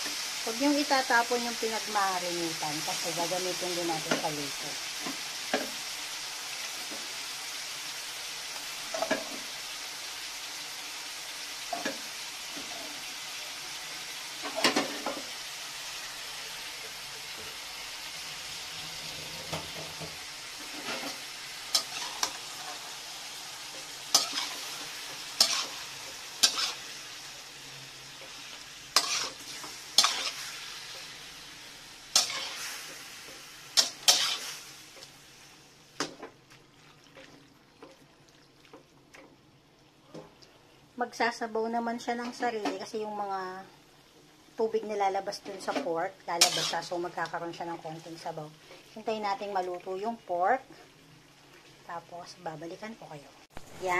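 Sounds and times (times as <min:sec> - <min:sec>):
meat sizzling in a wok: 0:00.0 - 0:53.9
metal spatula scraping a pan: 0:18.6 - 0:27.3, 0:28.1 - 0:31.3, 0:32.1 - 0:34.7, 0:45.4 - 0:47.0.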